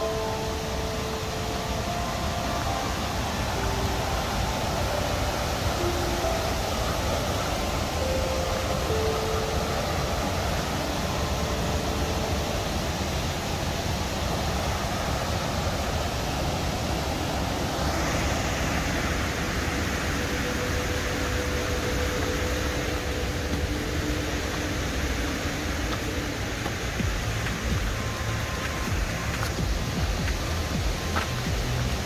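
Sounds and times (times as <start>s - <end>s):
stream water rushing: 0.0s - 32.0s.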